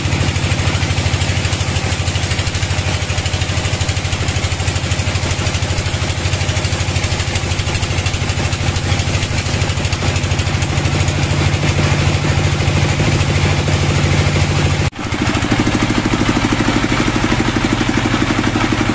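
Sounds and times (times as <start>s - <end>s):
band sawmill droning: 0.0s - 18.9s.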